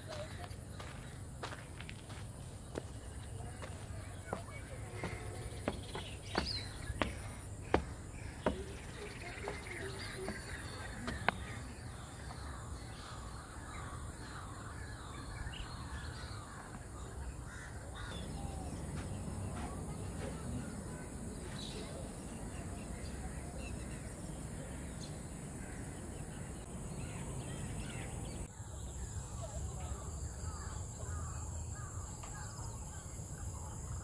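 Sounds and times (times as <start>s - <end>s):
wetland birds calling: 2.7s - 28.5s.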